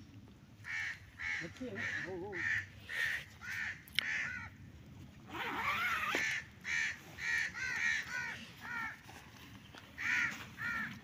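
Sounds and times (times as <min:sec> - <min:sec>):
crows cawing: 0:00.6 - 0:04.6, 0:05.8 - 0:09.2, 0:09.9 - 0:11.0.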